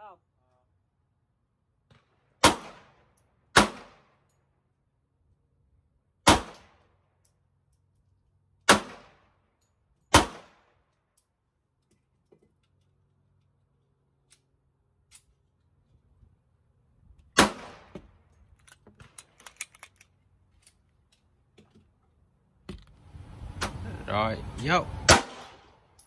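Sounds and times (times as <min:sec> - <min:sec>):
pistol shots with echo: 0:02.4 - 0:04.1, 0:06.2 - 0:06.7, 0:08.7 - 0:09.2, 0:10.1 - 0:10.6, 0:17.4 - 0:17.9, 0:25.1 - 0:25.8.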